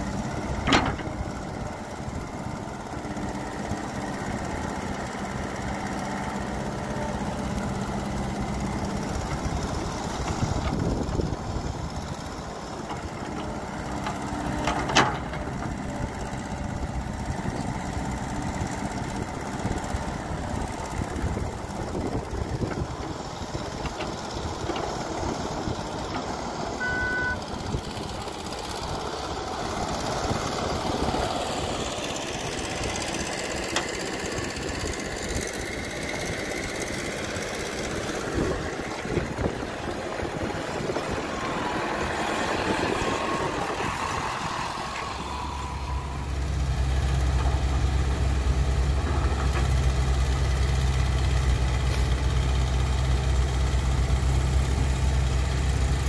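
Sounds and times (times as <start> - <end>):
excavator diesel engine running: 0.0 - 56.0
short beep: 26.8 - 27.4.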